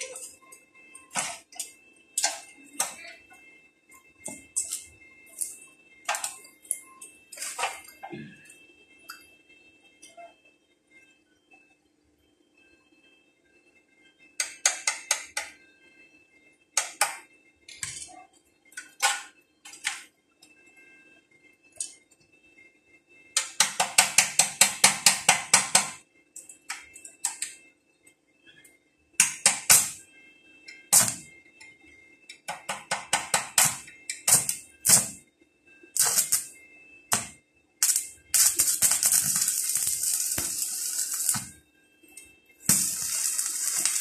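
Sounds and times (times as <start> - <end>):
arc welder crackling: 4.2 - 7.9, 29.2 - 30.0, 30.9 - 31.3, 32.4 - 35.2, 36.0 - 41.6, 42.6 - 44.0.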